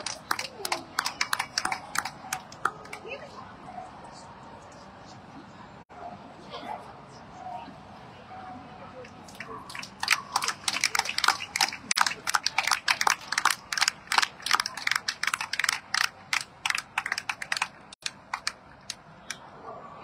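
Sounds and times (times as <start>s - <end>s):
scattered hand claps: 0.0s - 3.1s, 9.1s - 19.4s.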